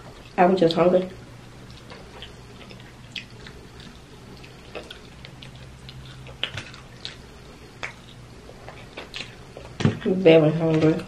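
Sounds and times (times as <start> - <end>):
faint low hum: 0.0 - 11.0
wet chewing and lip smacks: 1.6 - 9.8.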